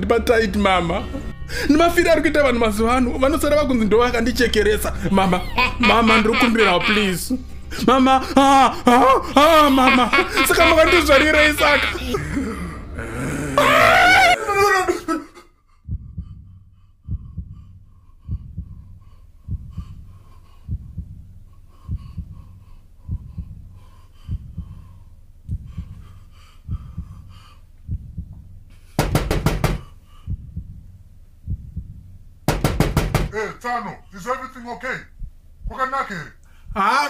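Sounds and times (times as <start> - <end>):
heartbeat thumps: 15.8 - 33.4, 35.0 - 36.8
rapid knocking: 24.3 - 24.9, 27.9 - 30.9, 31.5 - 33.4.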